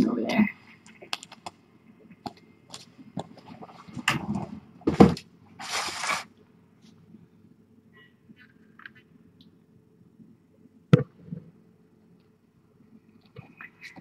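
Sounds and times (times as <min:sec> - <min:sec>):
rustling scrape: 0:05.6 - 0:07.0.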